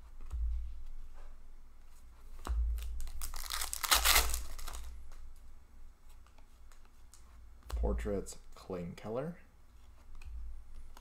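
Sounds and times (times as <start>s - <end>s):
cards rustling: 2.4s - 5.0s.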